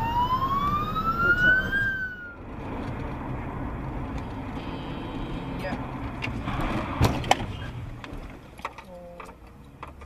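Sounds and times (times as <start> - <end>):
ambulance siren wailing: 0.0 - 2.5
car road noise: 0.0 - 10.0.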